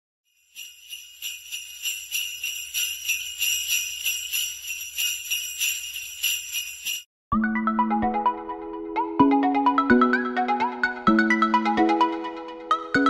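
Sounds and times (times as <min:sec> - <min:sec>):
jingle bells shaken: 0:00.3 - 0:07.1.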